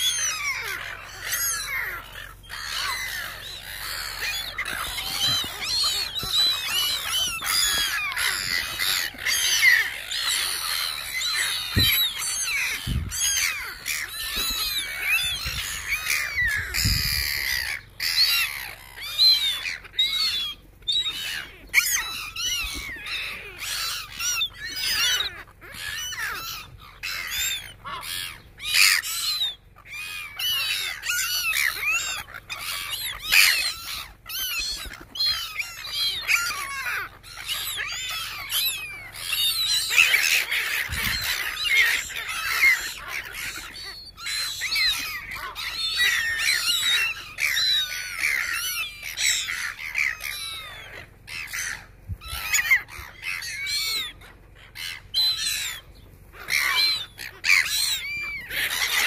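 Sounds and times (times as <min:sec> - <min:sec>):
gulls squawking: 0:00.0 - 0:59.0.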